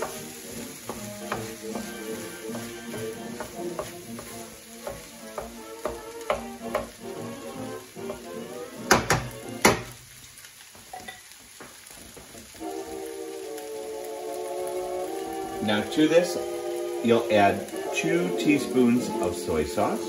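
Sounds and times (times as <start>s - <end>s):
wooden spoon scraping a pan: 0.0s - 8.3s
rice sizzling in a frying pan: 0.0s - 20.0s
spoon knocking against pan: 0.8s - 7.2s, 8.0s - 10.0s.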